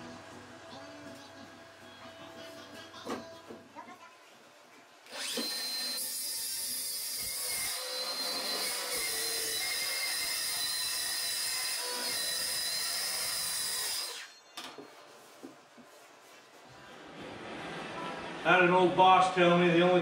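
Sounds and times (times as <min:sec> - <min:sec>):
circular saw cutting plastic: 0:05.1 - 0:14.4.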